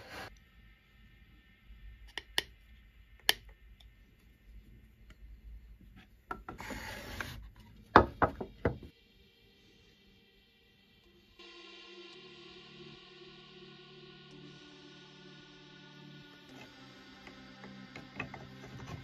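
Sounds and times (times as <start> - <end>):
wood scraping on wood: 6.0 - 7.8.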